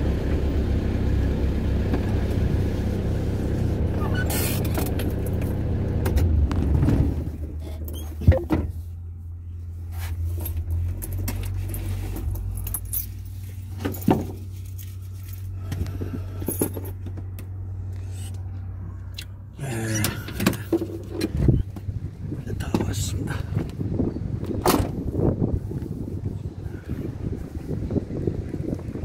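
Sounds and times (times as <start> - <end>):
low engine hum: 0.0 - 29.0
handling and rustling noise: 9.6 - 17.2.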